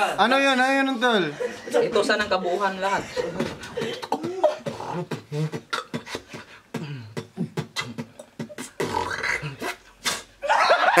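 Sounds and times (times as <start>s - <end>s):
person beatboxing: 3.3s - 10.4s.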